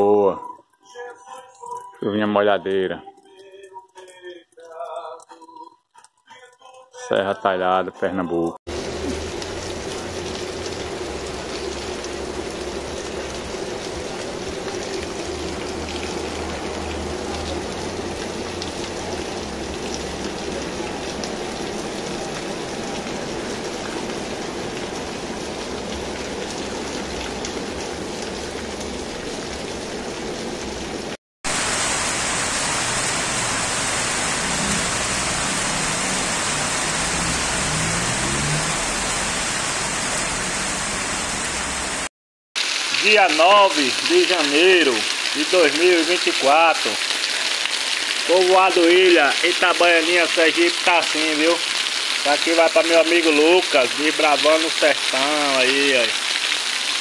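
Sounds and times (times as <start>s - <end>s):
rain falling on pavement: 8.7s - 57.0s
water running from roof spout: 8.7s - 57.0s.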